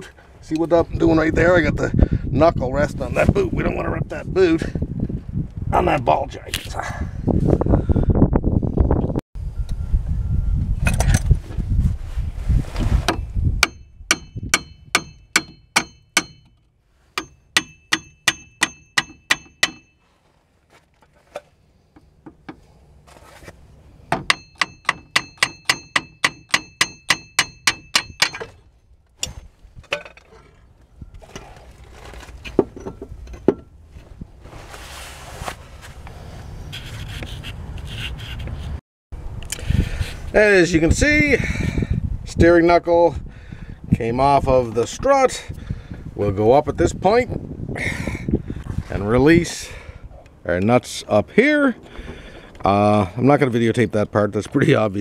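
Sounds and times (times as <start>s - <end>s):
hammer striking metal: 13.6s - 16.6s, 17.2s - 20.0s, 24.1s - 28.6s.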